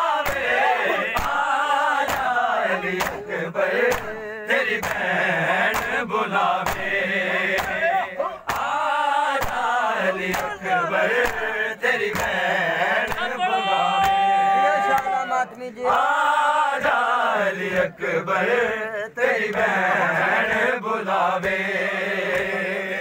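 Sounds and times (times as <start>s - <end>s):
men chanting together: 0.0s - 23.0s
hand slaps on chest: 0.2s - 0.5s, 1.1s - 2.4s, 3.0s - 4.2s, 4.8s - 6.0s, 6.6s - 7.8s, 8.5s - 8.8s, 9.4s - 9.7s, 10.3s - 10.6s, 11.2s - 11.5s, 12.1s - 12.4s, 13.0s - 13.3s, 14.0s - 14.2s, 22.3s - 22.6s.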